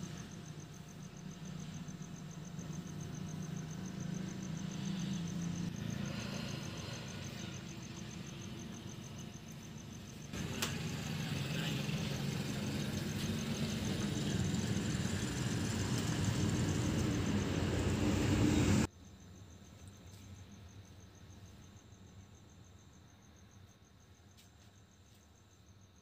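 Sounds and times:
low engine-like rumble: 0:00.0 - 0:18.9.

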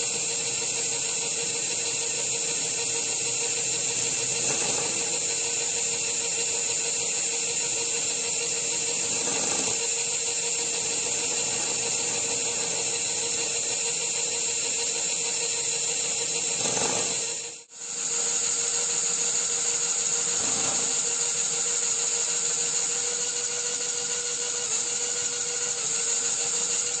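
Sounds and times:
electric motor whine: 0:00.0 - 0:27.0.

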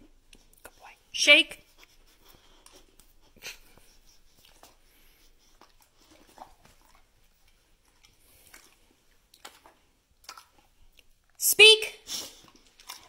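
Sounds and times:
dog chewing treat: 0:04.3 - 0:10.8, 0:12.3 - 0:13.0.

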